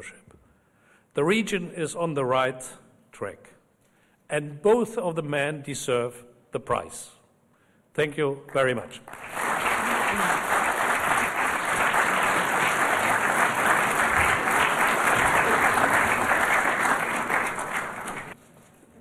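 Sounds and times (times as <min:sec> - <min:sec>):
audience applauding: 0:09.1 - 0:18.4.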